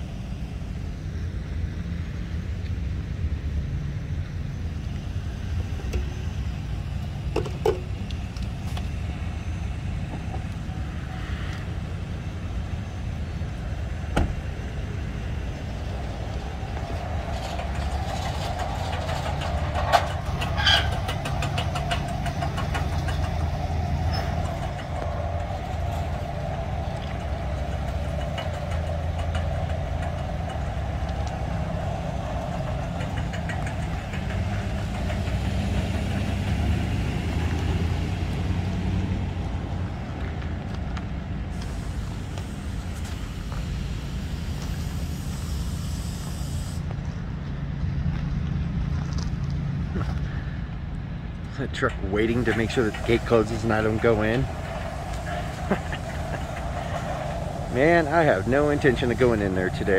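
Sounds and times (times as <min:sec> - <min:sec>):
truck engine idling: 0:00.0 - 0:59.9
sharp clicks and knocks: 0:07.3 - 0:08.9, 0:16.9 - 0:36.6.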